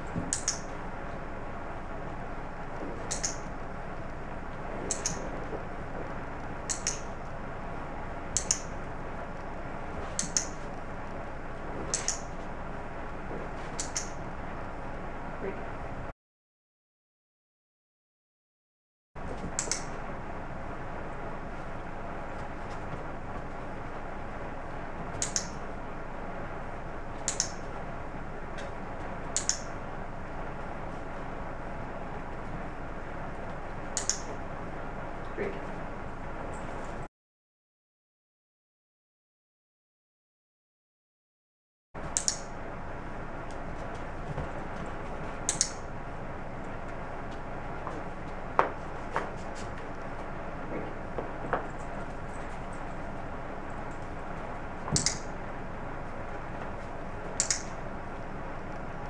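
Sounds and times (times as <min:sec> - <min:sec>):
room noise: 0:00.0 - 0:16.1, 0:19.2 - 0:37.1, 0:42.0 - 0:59.0
dog training clicker clicking: 0:00.3 - 0:00.7, 0:03.1 - 0:03.5, 0:04.9 - 0:05.3, 0:06.7 - 0:07.1, 0:08.4 - 0:08.7, 0:10.2 - 0:10.6, 0:11.9 - 0:12.3, 0:13.8 - 0:14.2, 0:19.6 - 0:19.9, 0:25.2 - 0:25.6, 0:27.2 - 0:27.6, 0:29.4 - 0:29.7, 0:34.0 - 0:34.3, 0:42.1 - 0:42.6, 0:45.5 - 0:45.8, 0:54.9 - 0:55.4, 0:57.4 - 0:57.8.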